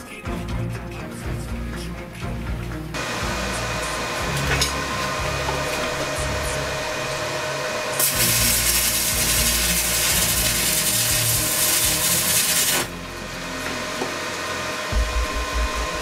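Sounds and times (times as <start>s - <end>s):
welding arc crackling and hissing: 7.9s - 13.0s.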